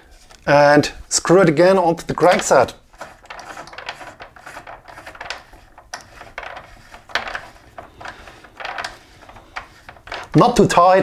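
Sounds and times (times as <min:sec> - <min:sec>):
metal rubbing and scraping: 0:01.2 - 0:11.0.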